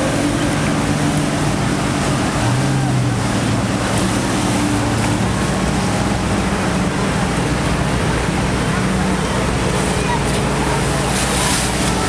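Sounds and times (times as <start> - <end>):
boat engines humming: 0.0 - 12.0
choppy water: 0.0 - 12.0.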